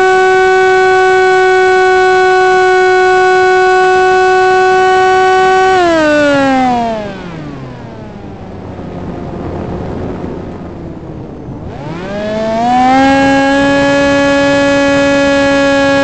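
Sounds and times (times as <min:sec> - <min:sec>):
electric motor and propeller whine: 0:00.0 - 0:16.0
rushing air: 0:07.0 - 0:13.7.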